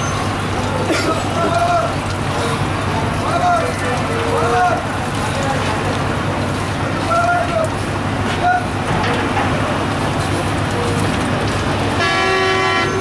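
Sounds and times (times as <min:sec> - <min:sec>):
distant voices: 0:00.0 - 0:12.0
engines idling: 0:00.0 - 0:13.0
vehicle horn: 0:12.0 - 0:13.0.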